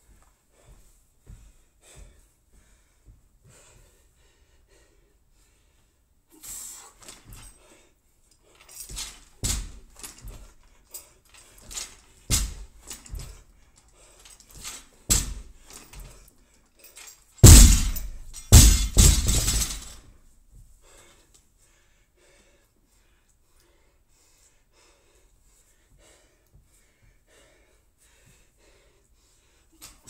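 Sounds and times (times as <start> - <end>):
hard breathing: 0.0 - 30.0
barbell crashing and bouncing: 15.1 - 15.5, 17.4 - 20.0
barbell plates hitting gym floor: 17.4 - 20.0.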